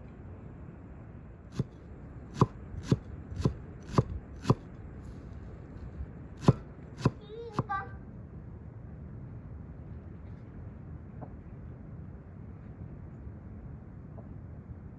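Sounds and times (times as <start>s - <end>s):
knife chopping on wooden board: 1.5s - 4.7s, 6.4s - 7.7s.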